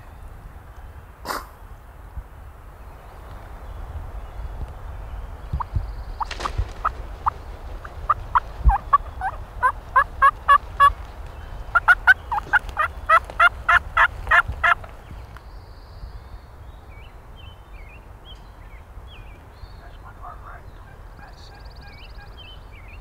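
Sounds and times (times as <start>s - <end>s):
small birds chirping: 0.0s - 23.0s
turkey yelping: 8.1s - 10.9s, 11.8s - 14.8s.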